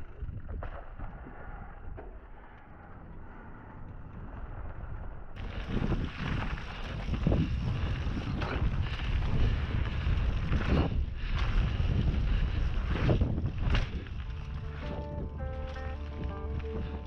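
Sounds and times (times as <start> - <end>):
wind rumbling on microphone: 0.0 - 17.0
bike tyres rolling on gravel: 5.4 - 17.0.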